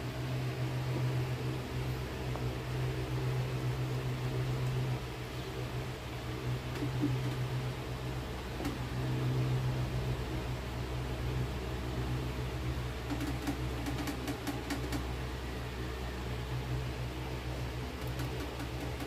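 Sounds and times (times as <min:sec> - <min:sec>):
electric fan whirring: 0:00.0 - 0:19.0.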